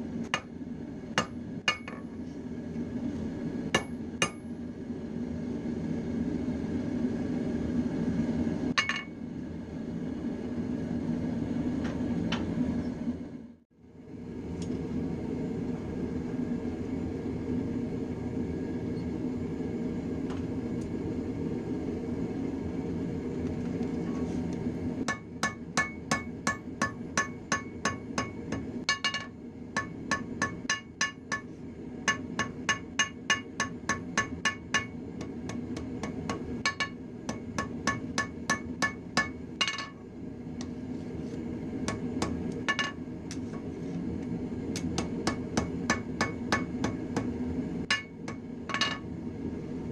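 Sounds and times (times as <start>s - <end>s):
hammer striking metal on anvil: 1.2s - 2.1s, 3.8s - 4.5s, 8.8s - 9.2s, 25.1s - 40.0s, 41.8s - 43.6s, 44.8s - 49.1s.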